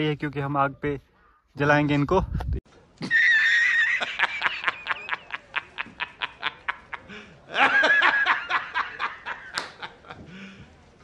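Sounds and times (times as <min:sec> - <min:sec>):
man laughing hard: 0:03.0 - 0:10.3.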